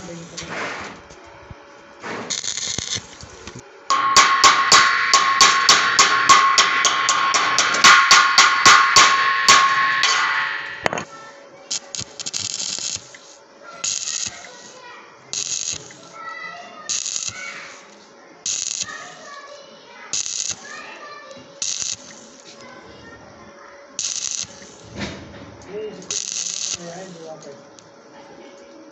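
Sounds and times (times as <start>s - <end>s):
welding arc crackle: 0.0s - 0.7s, 2.0s - 23.2s, 24.0s - 27.9s.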